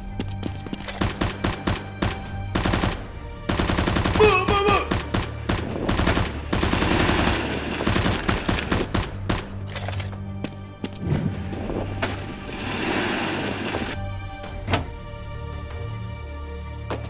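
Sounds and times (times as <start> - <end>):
rapid gunfire sound effects: 1.0 - 9.5.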